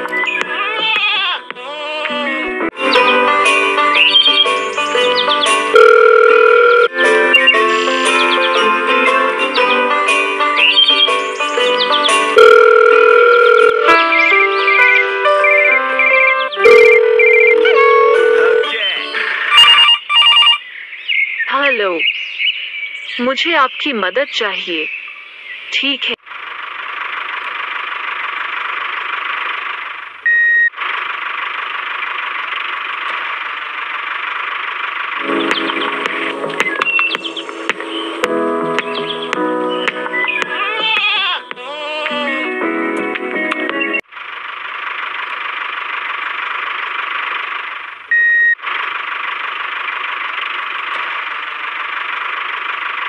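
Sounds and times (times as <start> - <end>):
mini tractor engine drone: 16.6 - 19.8, 26.3 - 38.2, 44.1 - 53.0
loud high beep: 19.5 - 20.6, 30.3 - 30.7, 48.1 - 48.6.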